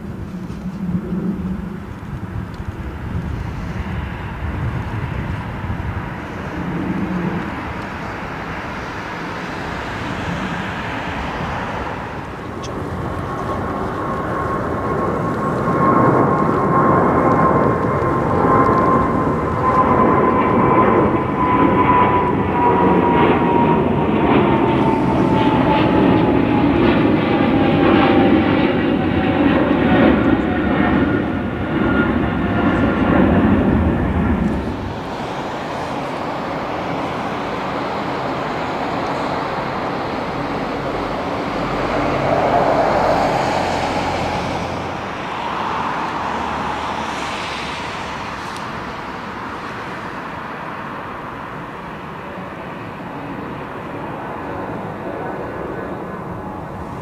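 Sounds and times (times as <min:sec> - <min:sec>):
jet engine roar with fan whine: 0:00.0 - 0:57.0.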